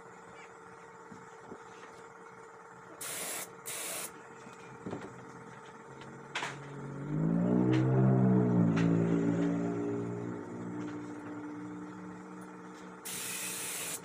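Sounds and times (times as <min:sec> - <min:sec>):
pressurized spray hissing: 0:03.0 - 0:04.1, 0:13.1 - 0:14.0.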